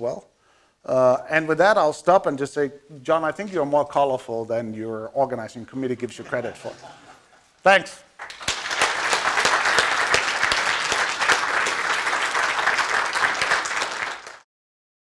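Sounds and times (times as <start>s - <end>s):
audience applauding: 8.2s - 14.5s.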